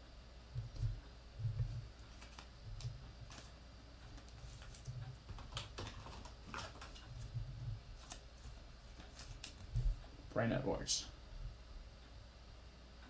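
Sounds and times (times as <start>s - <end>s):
card sliding into plastic sleeve: 2.0s - 3.5s, 4.2s - 7.1s.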